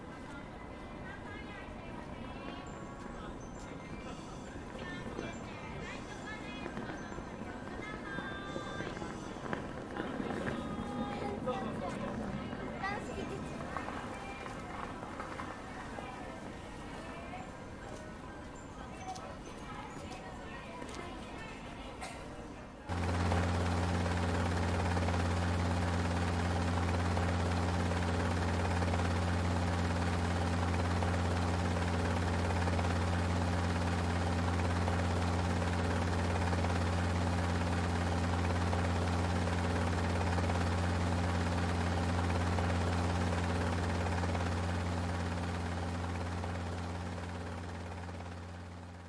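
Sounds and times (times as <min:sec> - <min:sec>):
drone propellers humming: 0:22.9 - 0:49.0.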